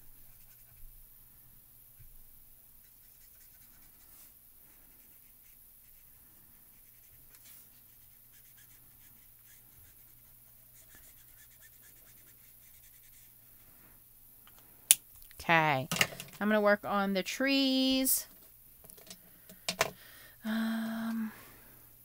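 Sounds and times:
marker nib scratching on card: 0.3s - 0.8s, 2.8s - 4.3s, 4.9s - 13.4s.

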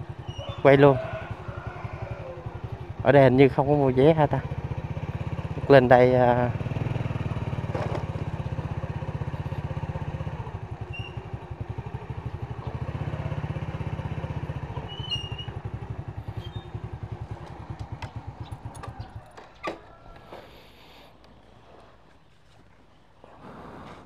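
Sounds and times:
motorcycle engine puttering: 0.0s - 22.2s.

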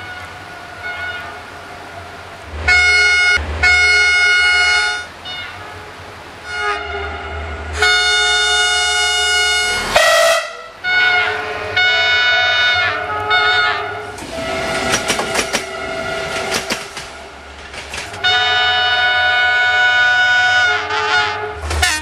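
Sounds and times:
low engine rumble: 0.0s - 10.0s
railway horn blasts: 0.0s - 22.0s.

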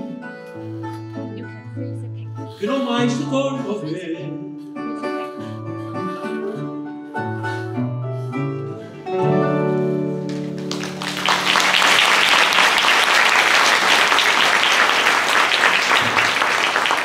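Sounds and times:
guitars playing: 8.6s - 11.1s
audience applause: 10.2s - 17.0s.

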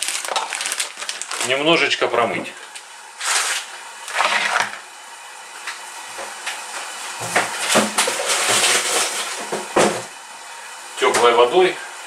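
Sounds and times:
frozen sprouts clattering in bowl: 0.0s - 1.8s
plastic bag crinkling: 0.0s - 4.7s.

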